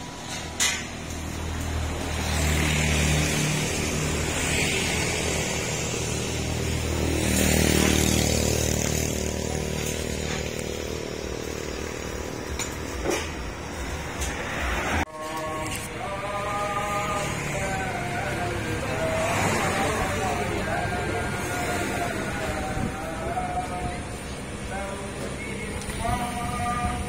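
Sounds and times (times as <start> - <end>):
vehicle engine running: 0.0 - 27.0.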